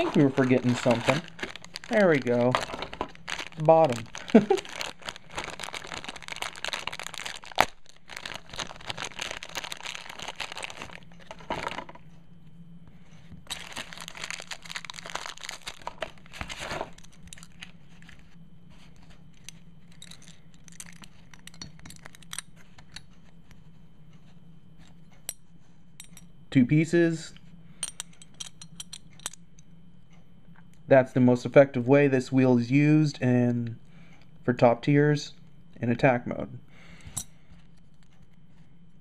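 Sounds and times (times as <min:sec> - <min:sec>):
plastic bag crinkling and tearing: 0:00.0 - 0:11.8, 0:13.5 - 0:17.6.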